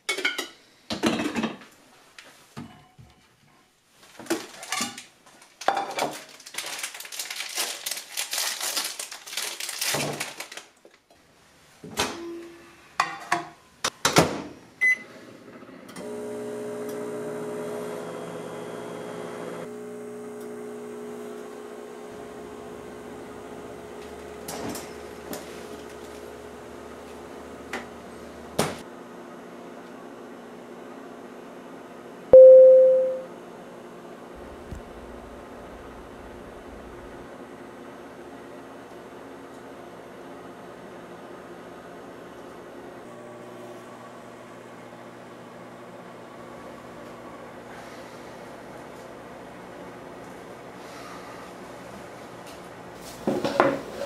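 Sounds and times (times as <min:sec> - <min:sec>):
microwave oven humming: 0:14.8 - 0:54.0
short beep: 0:32.4 - 0:33.3.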